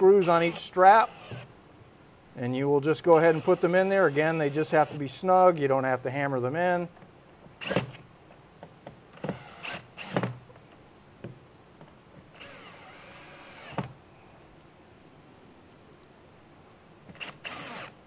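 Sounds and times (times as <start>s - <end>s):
cordless drill driving screws: 0.2s - 1.5s, 3.2s - 5.0s, 7.6s - 8.0s, 9.1s - 10.4s, 12.3s - 14.0s, 17.1s - 18.0s.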